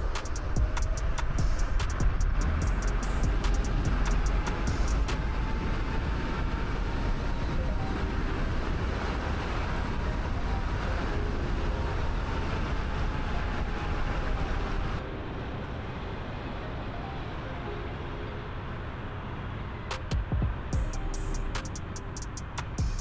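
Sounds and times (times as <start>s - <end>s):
wind rush: 0.0s - 17.6s
road noise: 0.0s - 23.0s.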